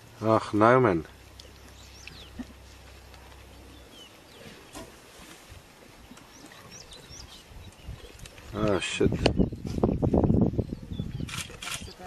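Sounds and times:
lions feeding on carcass: 0.9 - 10.0.

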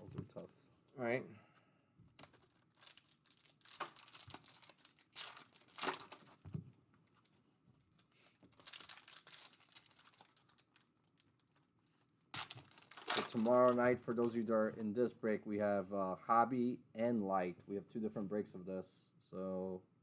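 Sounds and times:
foil wrapper tearing and crinkling: 2.2 - 6.4, 8.4 - 11.6, 12.3 - 14.4.

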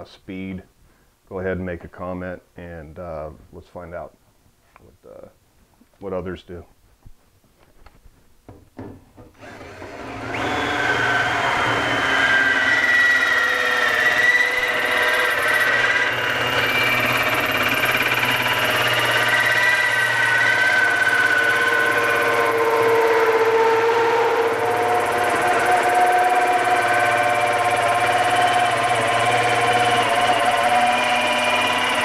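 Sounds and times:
drill motor hum: 9.3 - 32.0
hole saw screeching through metal: 9.4 - 32.0.

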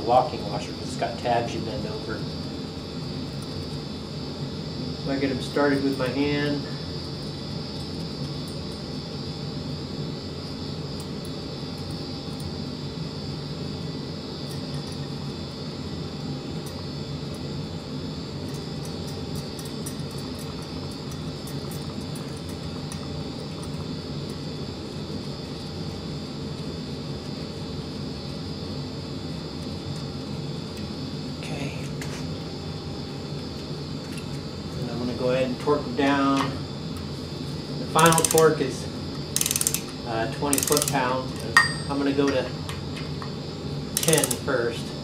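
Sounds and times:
steady droning fan noise: 0.0 - 45.0.

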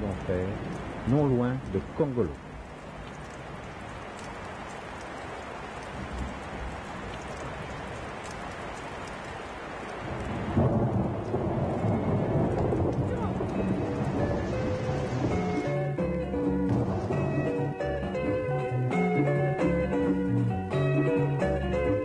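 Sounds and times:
steady rushing noise: 10.1 - 16.0
music with held tones: 12.8 - 22.0.

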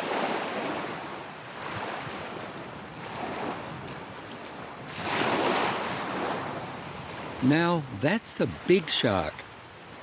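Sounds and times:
wind on microphone: 0.0 - 7.4
small waves washing on sand: 0.0 - 10.0.

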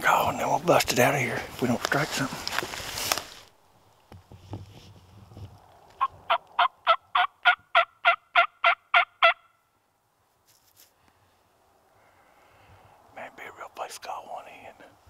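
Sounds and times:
turkey call yelps: 6.0 - 9.5.

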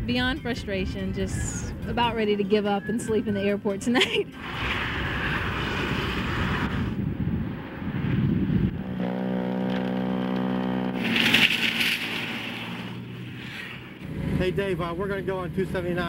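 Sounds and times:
snowplow trucks running: 4.3 - 7.8, 9.6 - 16.0
snow rushing off plow blade: 4.4 - 7.1, 10.9 - 14.3
shovel scraping snow: 11.0 - 13.9.

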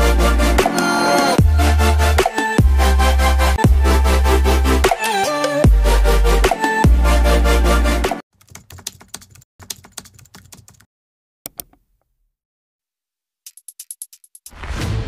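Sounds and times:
loud electronic music: 0.0 - 8.2
computer keyboard typing: 8.4 - 10.9, 13.5 - 14.5.

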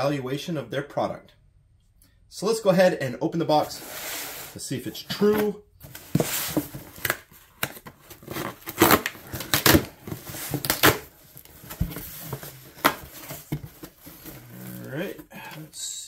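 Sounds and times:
cardboard flaps ripping and rustling: 5.2 - 15.2.

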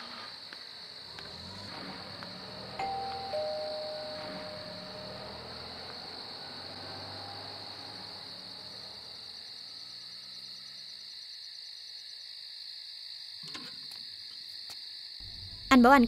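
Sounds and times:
crickets chirping: 0.0 - 16.0
soft background music: 2.8 - 5.6.

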